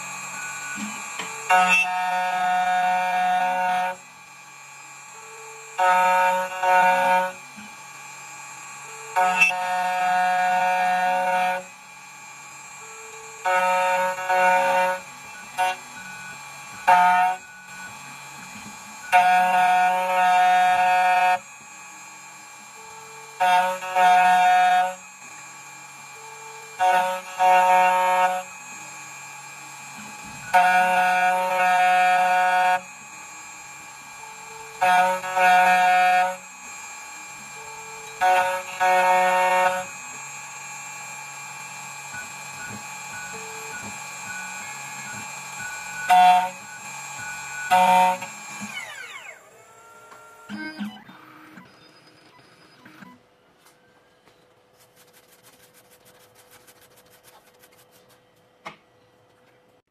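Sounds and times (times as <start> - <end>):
key cutting machine whine: 0.0 - 54.7
machine hum: 0.0 - 59.8.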